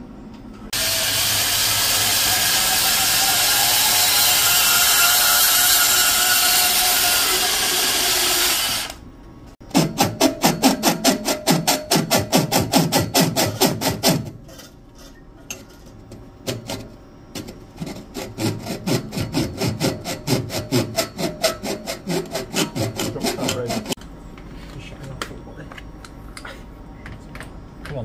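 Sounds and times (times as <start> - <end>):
deburring tool scraping pipe: 13.1 - 24.0.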